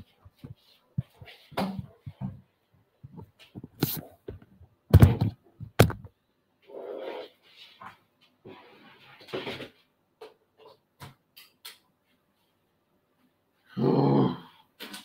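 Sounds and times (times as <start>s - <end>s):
knocks and thumps: 0.2s - 6.1s.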